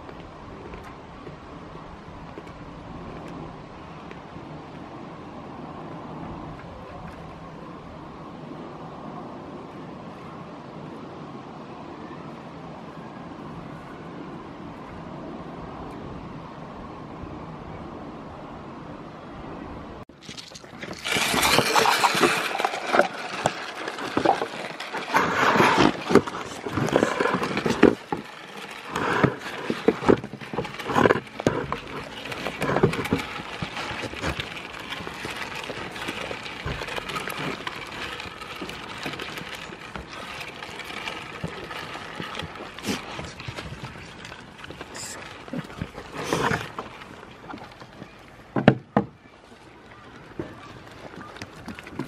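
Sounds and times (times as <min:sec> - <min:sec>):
goats crunching and chewing: 0:20.1 - 0:48.7, 0:49.3 - 0:52.0.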